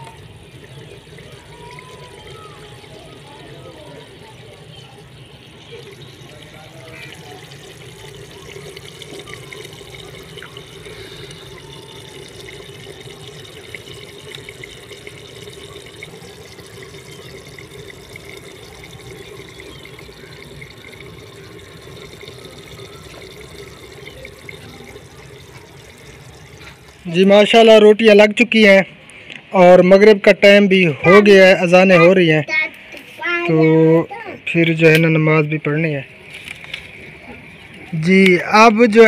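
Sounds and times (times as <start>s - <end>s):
curry bubbling in a pot: 0.0s - 27.2s.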